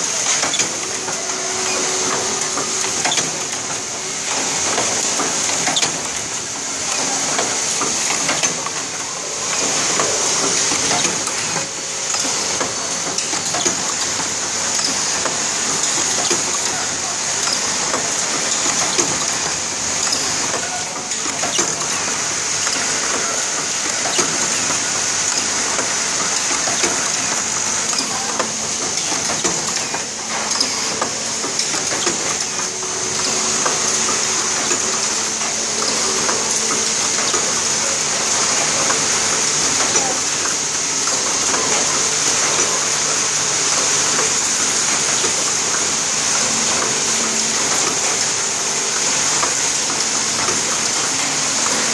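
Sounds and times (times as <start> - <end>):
machine hissing: 0.0 - 51.9
pneumatic clicks and knocks: 0.1 - 8.9, 9.5 - 37.6.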